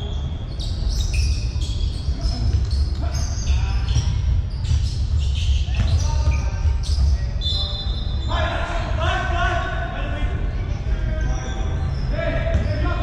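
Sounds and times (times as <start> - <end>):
sneaker squeaks: 0.0 - 8.8, 10.4 - 13.0
basketball bouncing on court: 2.2 - 7.2, 12.5 - 12.9.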